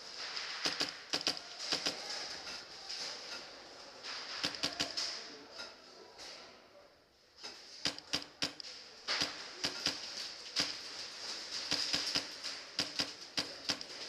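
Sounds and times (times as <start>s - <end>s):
airsoft gunfire snaps: 0.6s - 2.0s.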